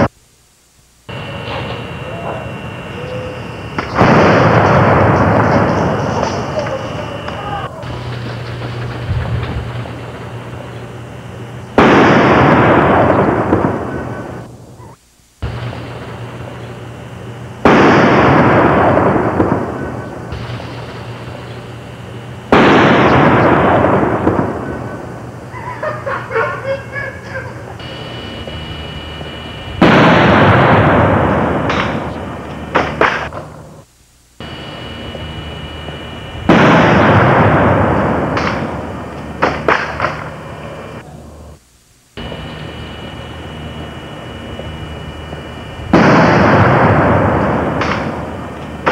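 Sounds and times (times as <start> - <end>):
steady hiss: 0.0 - 48.9
thin high whine: 0.0 - 48.9
firecracker blasts: 0.8 - 14.8, 15.4 - 25.5, 27.8 - 41.6, 42.2 - 48.9
short sharp cracks: 31.7 - 33.5, 38.3 - 38.8, 39.4 - 40.4.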